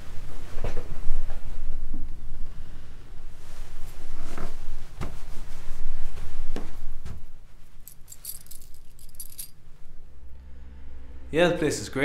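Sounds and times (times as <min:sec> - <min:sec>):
low room hum: 0:00.0 - 0:12.0
keys jangling: 0:07.8 - 0:09.6.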